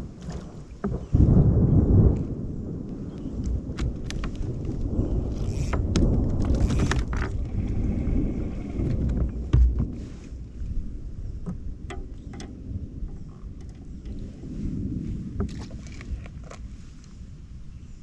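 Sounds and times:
low rumble: 0.0 - 18.0
gear knocking in plastic kayak: 3.4 - 10.2, 11.4 - 14.5.

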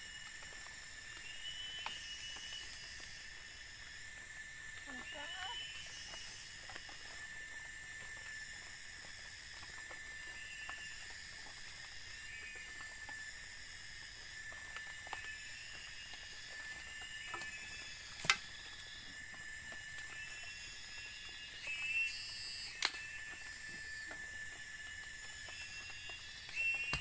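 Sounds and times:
forest insects droning: 0.0 - 27.0.

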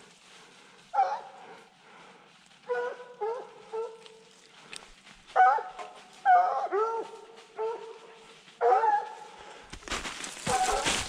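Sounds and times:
hounds baying: 0.9 - 1.7, 2.6 - 4.3, 5.3 - 9.6, 10.4 - 11.0.

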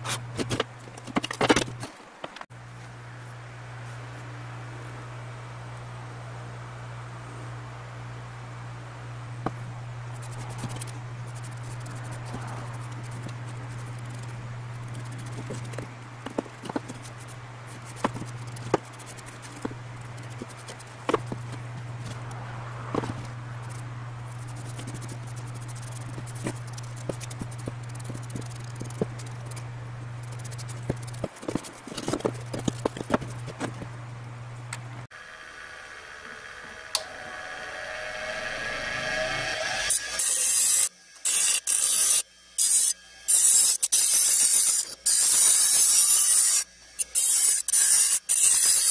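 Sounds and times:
steady low hum: 0.0 - 44.0
marker scratching on wood: 10.2 - 22.3, 23.0 - 29.6, 30.2 - 33.8.

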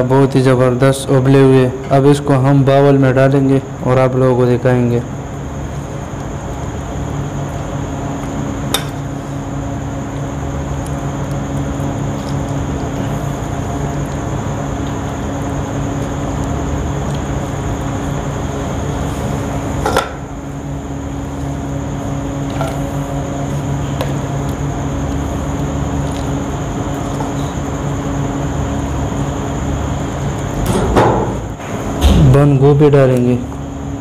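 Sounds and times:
background hum: 0.0 - 34.0.

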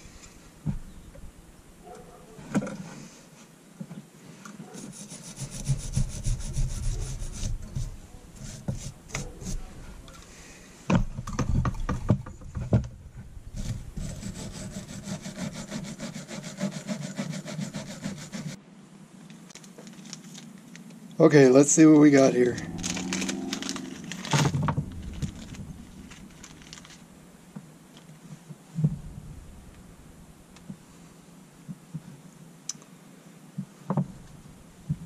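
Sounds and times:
wire brush scrubbing metal: 4.8 - 9.8, 13.6 - 18.6.

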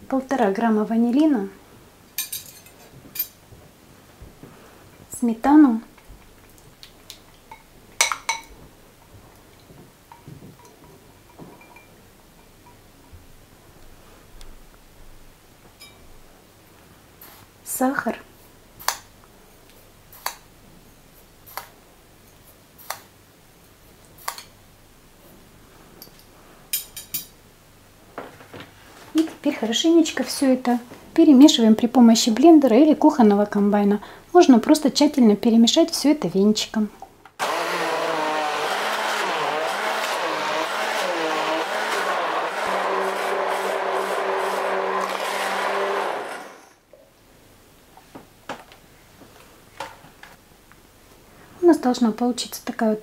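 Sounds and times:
immersion blender whirring: 37.4 - 46.8.

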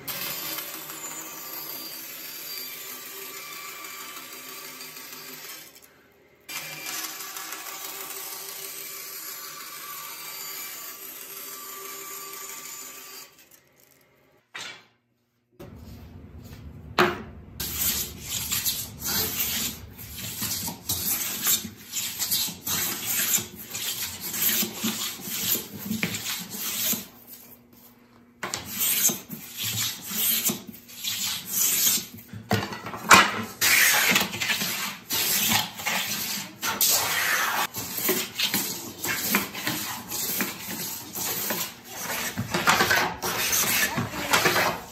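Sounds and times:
bandsaw running: 0.0 - 13.9, 17.6 - 27.4, 33.1 - 44.9
hand plane shaving wood: 33.6 - 44.9.

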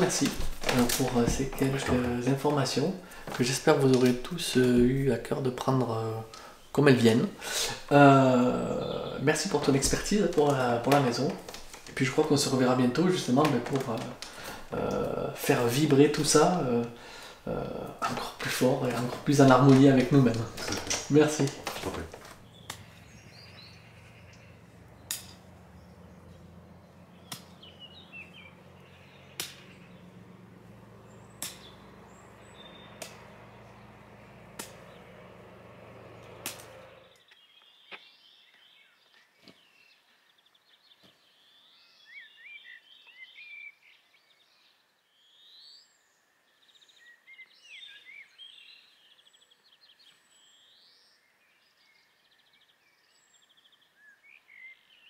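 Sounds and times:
birds chirping and singing: 0.0 - 55.0
garden tool chopping ground: 27.2 - 27.7, 29.3 - 29.8, 31.3 - 32.0, 34.4 - 35.2, 36.2 - 36.9.

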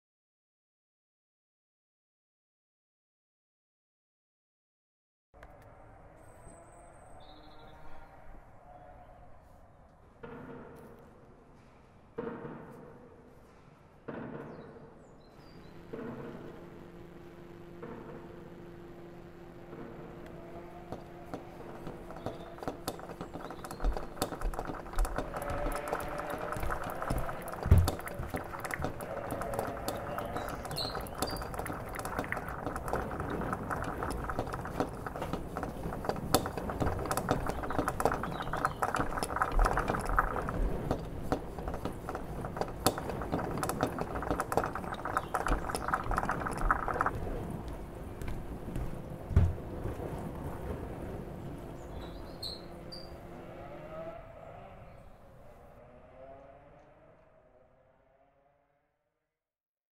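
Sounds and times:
steady low hum: 15.3 - 53.7
mid-range noise layer: 15.3 - 54.0
dense clicking and crackling: 20.1 - 48.4
heavy thumps: 48.3 - 49.9.

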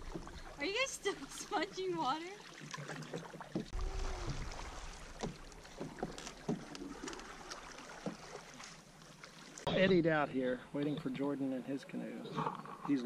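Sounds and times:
paddle strokes: 0.0 - 9.7
water lapping against hull: 0.0 - 11.3.

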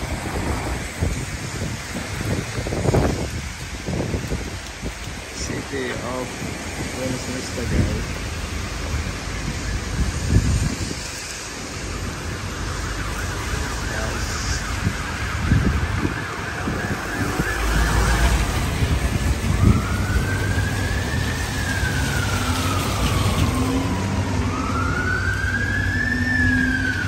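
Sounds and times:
heavy rain: 0.0 - 27.0
tyres hissing on wet road: 0.0 - 27.0
siren wailing: 8.7 - 27.0.

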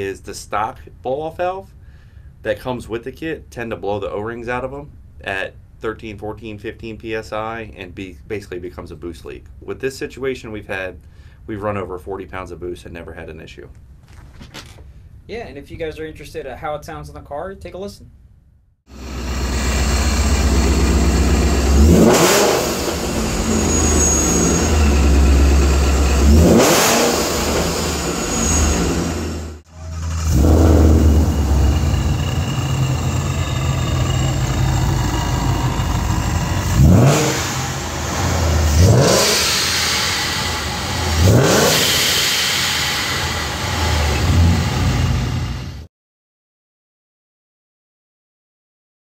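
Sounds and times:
blow-off valve venting: 18.9 - 45.6
car engine revving: 18.9 - 45.8
engine idling: 18.9 - 45.8.

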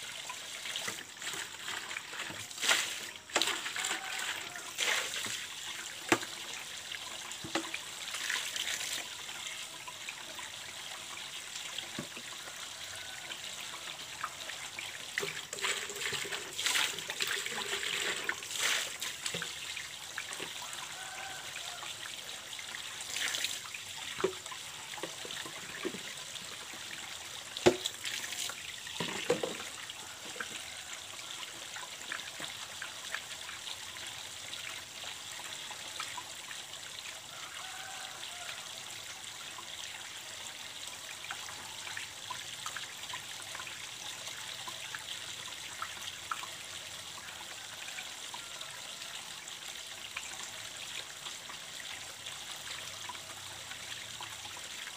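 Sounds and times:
water splashing from containers: 0.0 - 38.6
water trickling from pipe: 0.0 - 54.9
containers knocking: 29.0 - 29.7.

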